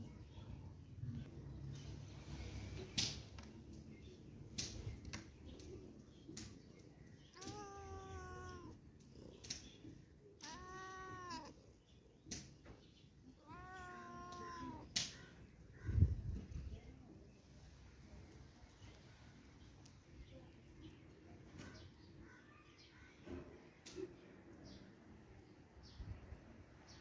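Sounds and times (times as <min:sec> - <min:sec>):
cat meowing: 0:07.3 - 0:09.3, 0:10.4 - 0:11.6, 0:13.3 - 0:15.3.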